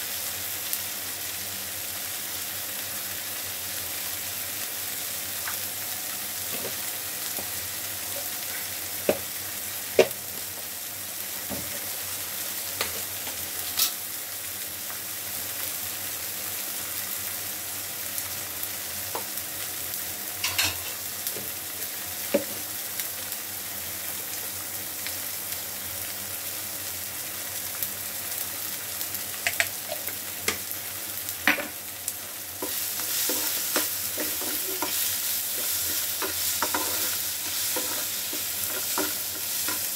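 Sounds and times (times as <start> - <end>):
onions sizzling in a frying pan: 0.0 - 39.9
metal spoon stirring pan: 32.6 - 39.9.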